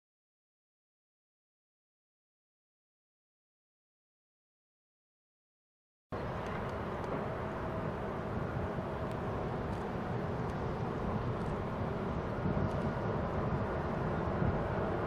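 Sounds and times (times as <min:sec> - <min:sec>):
jet engine rumble with whine: 0:06.2 - 0:15.0.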